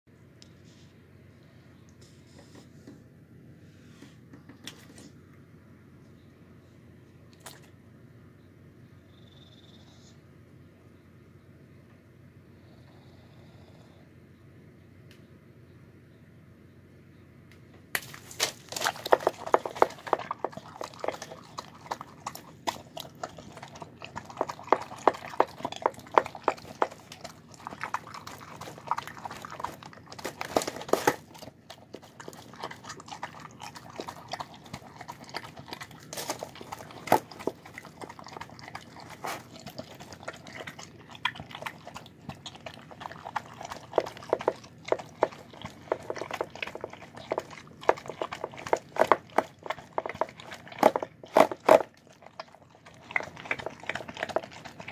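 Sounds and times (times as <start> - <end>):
dog chewing and lip-smacking: 18.4 - 54.9.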